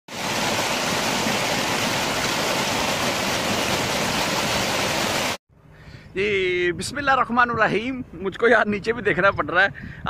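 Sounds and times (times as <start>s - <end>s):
water rushing over rocks: 0.1s - 5.4s.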